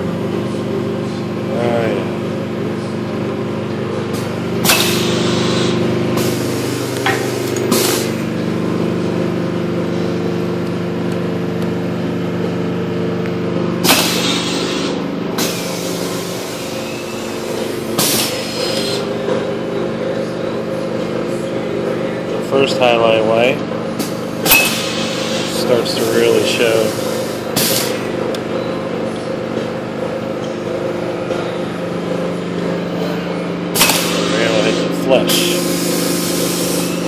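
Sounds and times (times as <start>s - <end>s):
printing press machine hum: 0.0s - 37.0s
air cylinder hisses: 33.8s - 37.0s.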